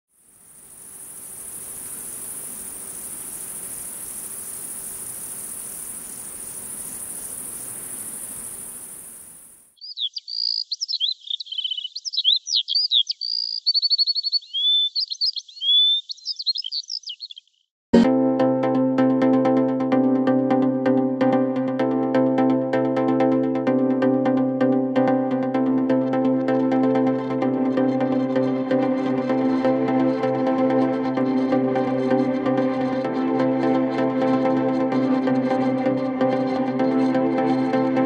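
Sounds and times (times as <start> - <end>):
insect chirring: 0.1 - 17.6
songbird whistled song: 5.0 - 17.6
electronic music: 18.0 - 38.0.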